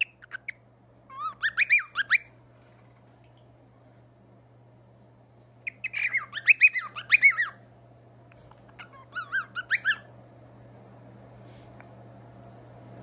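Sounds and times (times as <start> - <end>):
cockatiel chirping: 0.0 - 2.3, 5.6 - 7.6, 8.8 - 10.1.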